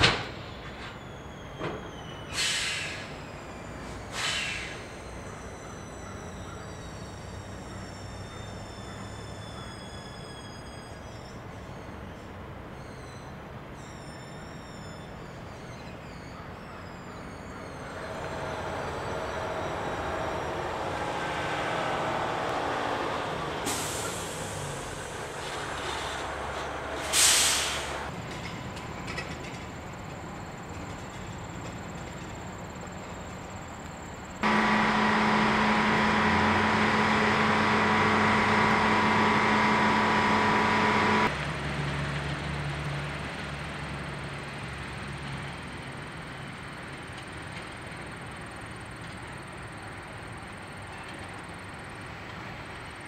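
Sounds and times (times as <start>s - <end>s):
air brakes hissing: 0.0s - 11.9s, 23.5s - 28.1s, 34.4s - 41.3s
diesel engine revving: 17.8s - 28.1s, 34.4s - 43.8s
steady engine drone with hum: 17.8s - 28.1s, 33.6s - 46.2s.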